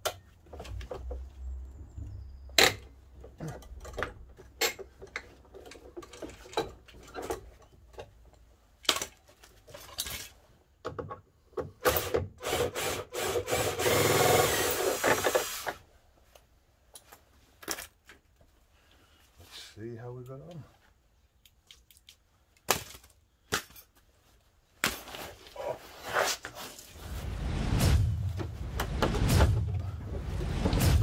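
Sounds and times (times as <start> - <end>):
hand tools clicking and knocking: 2.6 - 12.2
cordless drill-driver running: 12.4 - 15.7.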